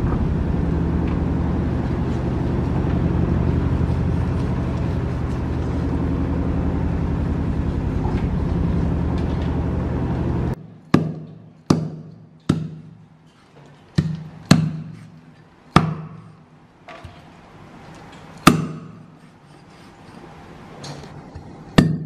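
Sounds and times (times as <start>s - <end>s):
droning hum: 0.0s - 22.0s
cleaver chopping on wooden block: 10.9s - 12.9s, 14.0s - 15.0s, 15.8s - 16.3s, 18.4s - 19.0s.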